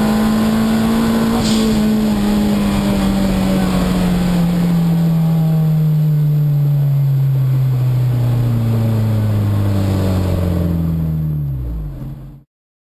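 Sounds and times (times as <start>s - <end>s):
car engine revs dropping: 0.0s - 6.2s.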